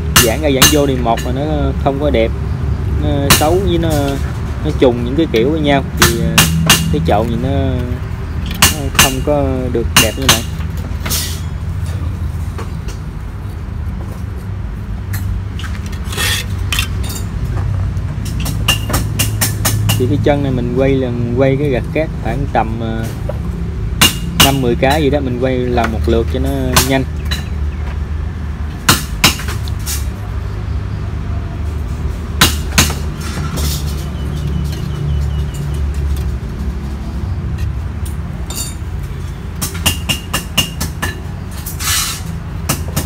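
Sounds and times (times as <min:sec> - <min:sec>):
metal tool scraping wet mortar: 0:16.0 - 0:17.0.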